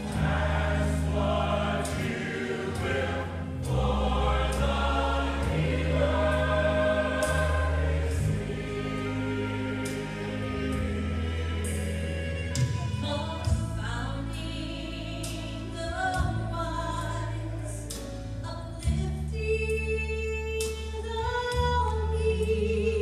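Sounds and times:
choir singing gospel: 0.0 - 17.9
low instrumental accompaniment: 0.0 - 23.0.

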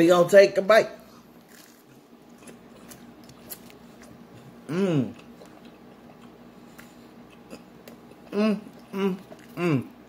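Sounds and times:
man chewing food: 1.2 - 10.0
man humming mmm: 4.6 - 5.2, 8.2 - 10.0.

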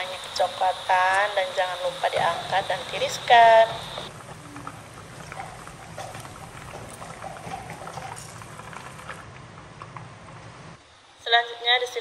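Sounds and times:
chicken frying in hot oil: 0.0 - 10.9
oil crackling and popping: 2.1 - 10.6.

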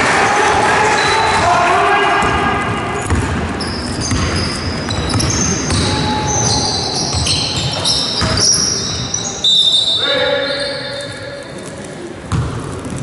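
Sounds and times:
basketball bouncing: 2.2 - 9.0, 12.2 - 13.0
shoes squeaking on floor: 3.0 - 11.9.

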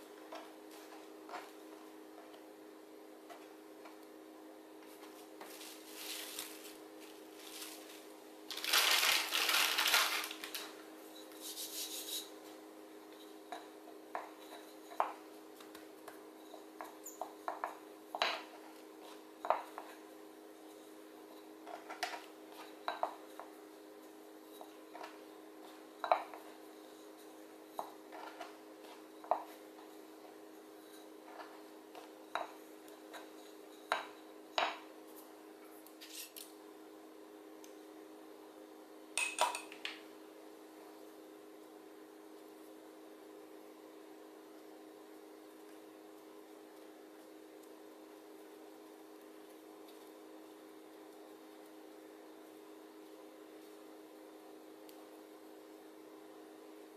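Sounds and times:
cling film crinkling: 5.6 - 10.7
rolling pin rolling dough: 11.2 - 34.8.

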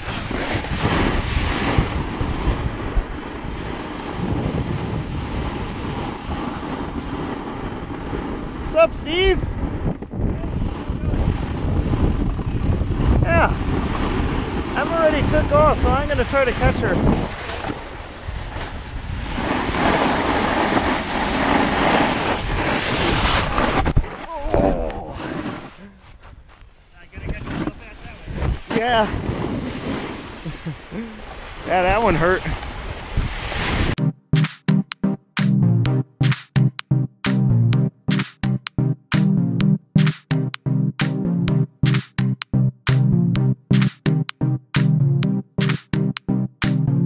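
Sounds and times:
snowboard scraping over snow: 0.0 - 24.4, 25.0 - 26.0, 27.2 - 34.0
wind rumbling on microphone: 0.0 - 26.5, 27.1 - 34.0.

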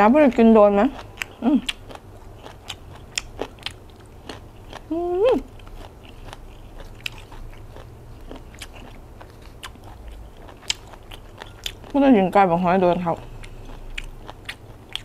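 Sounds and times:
person chewing food: 0.8 - 15.0
person humming: 4.9 - 5.5.

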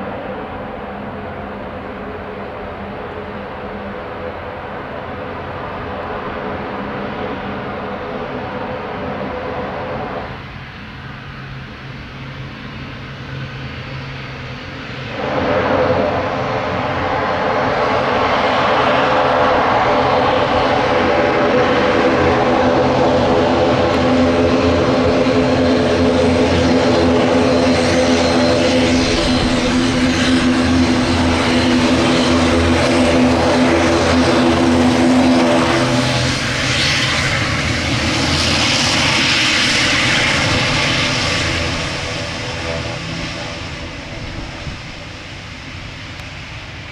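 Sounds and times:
turboprop engines and propellers: 0.0 - 46.9.

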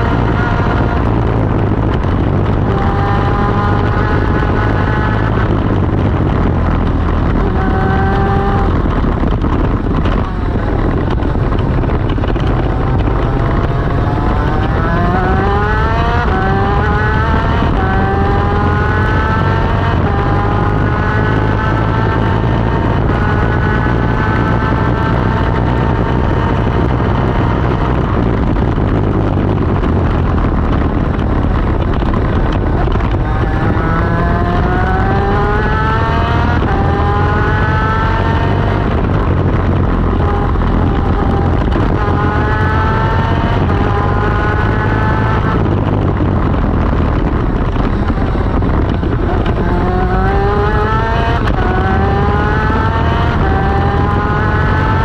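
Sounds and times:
two-stroke racing engine: 0.0 - 55.0
wind noise: 0.0 - 55.0.

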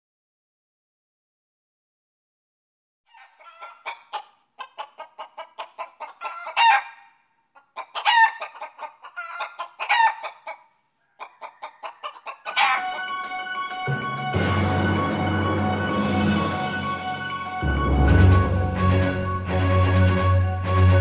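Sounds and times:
hen clucking: 3.1 - 14.2
hen cackling: 3.1 - 14.4.

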